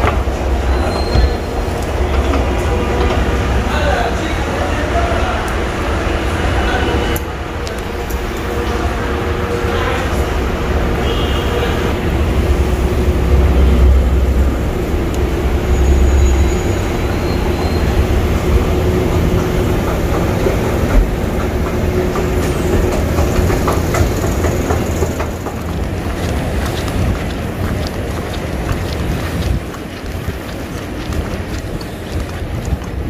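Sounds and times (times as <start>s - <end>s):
escalator rumble and hum: 11.6s - 33.0s.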